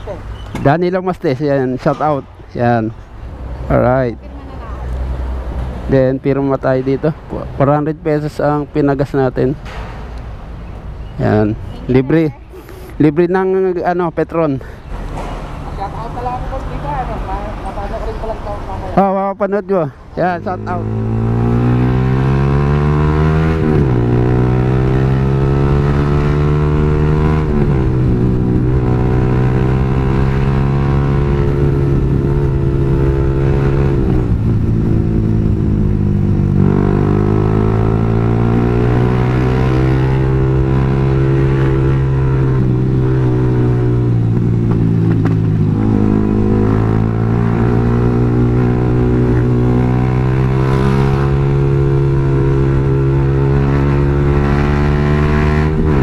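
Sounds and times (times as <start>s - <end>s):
motorcycle engine accelerating: 20.3s - 56.0s.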